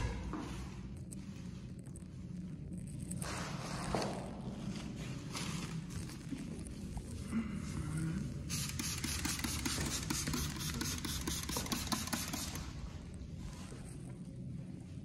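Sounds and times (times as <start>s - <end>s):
steady low hum: 0.0s - 15.0s
spray bottle squirting: 8.5s - 12.8s.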